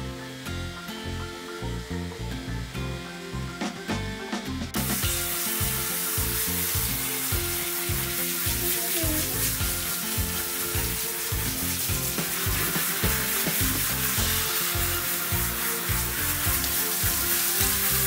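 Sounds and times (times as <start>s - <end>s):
background music with bass beat: 0.0s - 18.0s
shower head spraying water: 4.8s - 18.0s.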